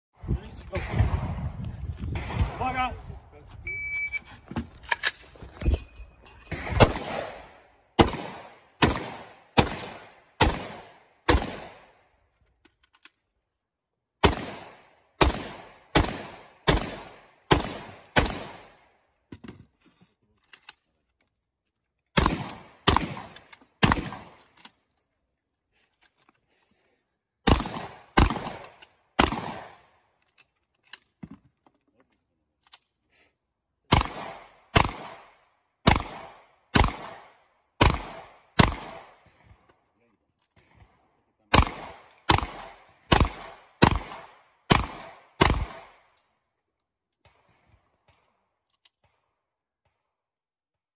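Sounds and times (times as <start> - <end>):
rifle gunshots: 0.6 - 2.9, 6.5 - 12.0, 14.2 - 18.8, 22.2 - 24.4, 27.4 - 29.9, 33.9 - 39.3, 41.5 - 46.1.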